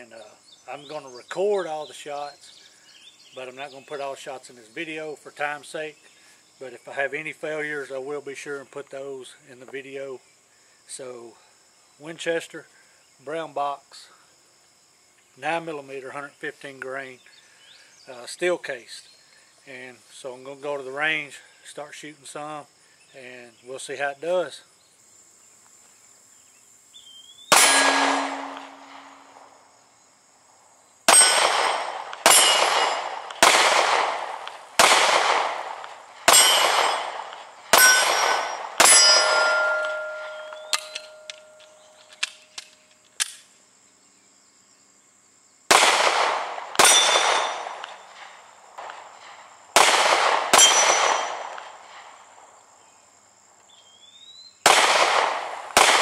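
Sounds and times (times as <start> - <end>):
steel plates ringing: 27.5 - 29.3, 31.1 - 31.5, 32.3 - 33.0, 36.3 - 37.1, 37.7 - 42.0
pistol shots: 27.5 - 29.4, 31.1 - 42.4, 45.7 - 52.1, 54.7 - 56.0.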